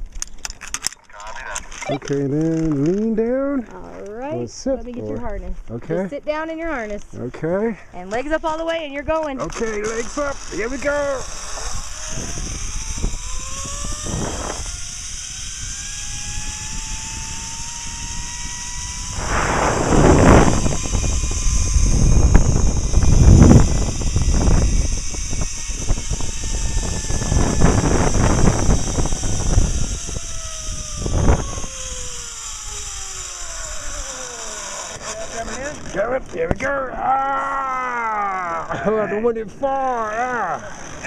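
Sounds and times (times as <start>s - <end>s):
zip line trolley whine: 8.2s - 36.3s, 37.1s - 39.0s, 39.8s - 41.0s
wind on microphone: 9.7s - 32.5s
low rumble: 18.2s - 32.2s
short burst of noise: 19.0s - 21.6s.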